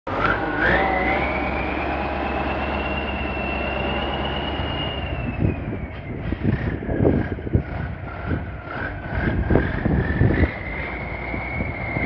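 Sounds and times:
diesel engine rumbling: 0:00.1 - 0:12.0
high turbo whistle: 0:00.2 - 0:06.8, 0:10.1 - 0:12.0.

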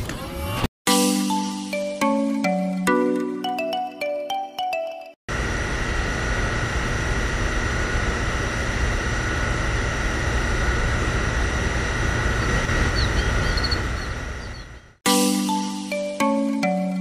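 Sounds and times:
mini water pump whining: 0:05.3 - 0:15.0.

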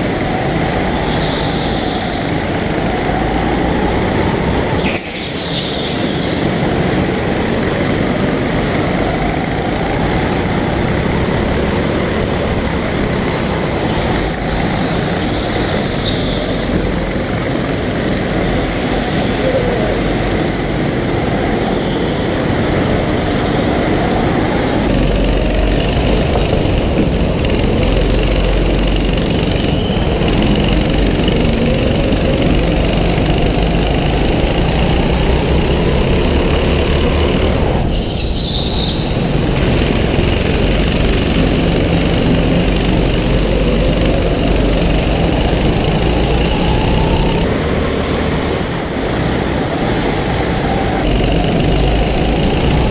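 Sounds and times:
go-kart engine revving: 0:00.0 - 0:52.9
other go-kart engines: 0:00.0 - 0:52.9.

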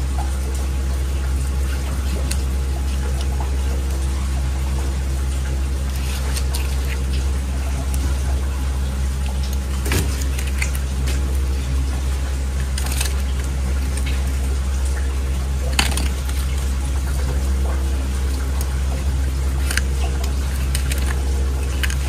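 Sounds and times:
low machine hum with hiss: 0:00.0 - 0:22.0
knife knocking and scraping bone: 0:15.7 - 0:16.6.

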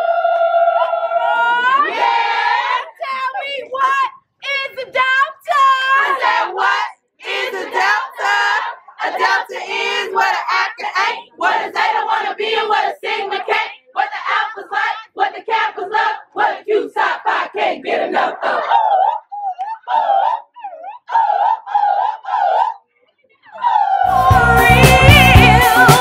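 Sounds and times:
women chanting together: 0:00.0 - 0:22.9, 0:23.5 - 0:26.0
crowd shouting excitedly: 0:00.8 - 0:04.0.

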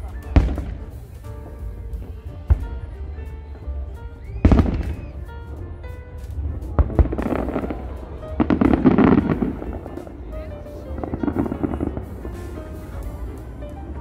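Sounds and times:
fireworks booming: 0:00.0 - 0:14.0
fireworks crackling: 0:00.0 - 0:14.0
music: 0:00.0 - 0:14.0.

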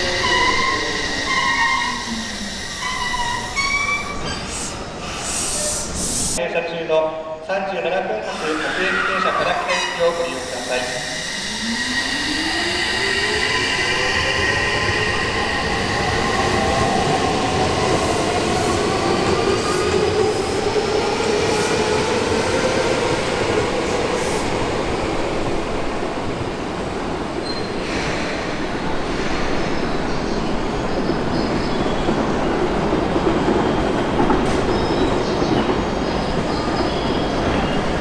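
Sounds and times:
train rolling noise: 0:08.3 - 0:38.0.

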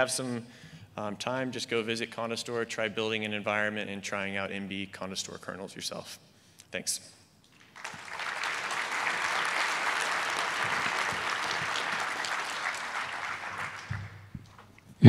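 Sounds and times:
audience applauding: 0:07.6 - 0:14.4.

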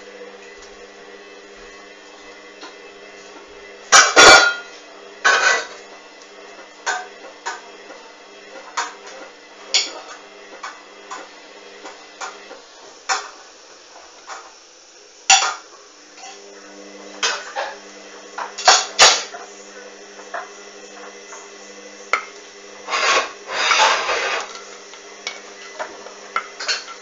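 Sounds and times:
washing machine motor hum: 0:00.0 - 0:27.0.

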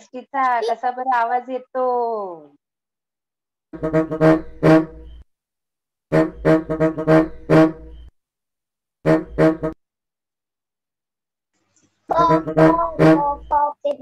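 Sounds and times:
bus horn honking: 0:03.8 - 0:05.1, 0:06.1 - 0:08.0, 0:09.1 - 0:09.8, 0:12.1 - 0:13.5.

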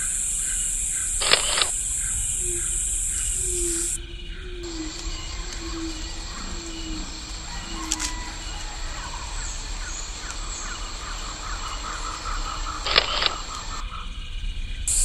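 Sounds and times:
high insect drone: 0:00.0 - 0:15.0
fast short chirps: 0:01.0 - 0:04.0, 0:12.8 - 0:13.8
sharp click: 0:01.2 - 0:01.8, 0:12.9 - 0:13.6
low sliding calls: 0:01.2 - 0:04.0, 0:12.8 - 0:13.8.

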